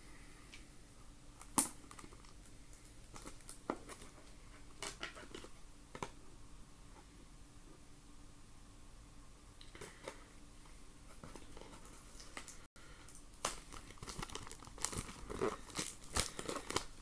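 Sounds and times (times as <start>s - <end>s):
wrapping crinkling: 1.4s - 6.1s, 11.1s - 17.0s.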